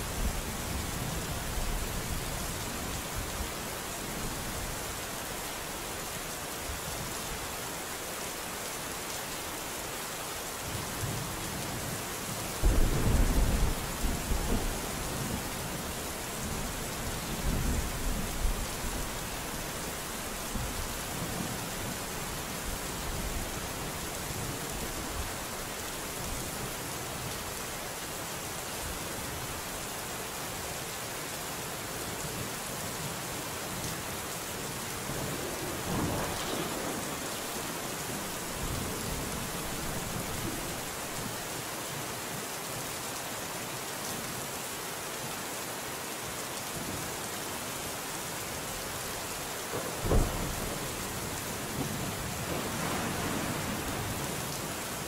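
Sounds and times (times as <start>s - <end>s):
heavy rain hiss: 0.0s - 55.0s
loud thunderclap: 12.6s - 15.4s, 35.6s - 40.6s, 49.8s - 51.0s
thunder rumbling: 12.6s - 18.9s, 35.0s - 41.0s, 49.7s - 54.3s.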